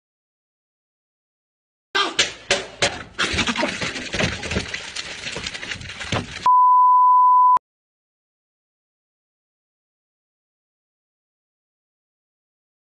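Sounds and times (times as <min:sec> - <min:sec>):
wet chomping and slurping: 0:03.2 - 0:06.5
steady beep tone: 0:06.5 - 0:07.6.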